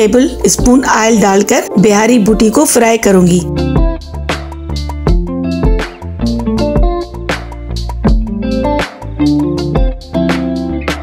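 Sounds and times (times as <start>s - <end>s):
plucked guitar notes: 3.5s - 11.0s.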